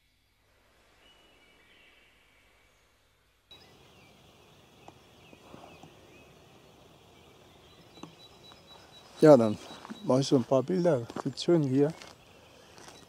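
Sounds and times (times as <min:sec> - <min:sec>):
background hiss: 0:00.0 - 0:13.0
distant birdsong: 0:00.0 - 0:13.0
faint clicks: 0:04.7 - 0:06.1.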